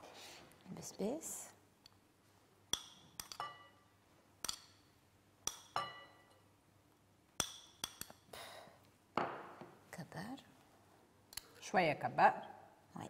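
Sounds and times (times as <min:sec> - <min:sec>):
metal spoon clinking on dishes: 0:02.7 - 0:06.4, 0:07.4 - 0:08.3.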